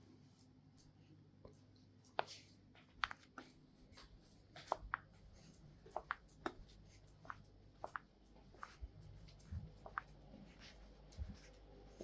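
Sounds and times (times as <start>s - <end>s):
dog claws clicking on tiles: 4.3s - 10.4s.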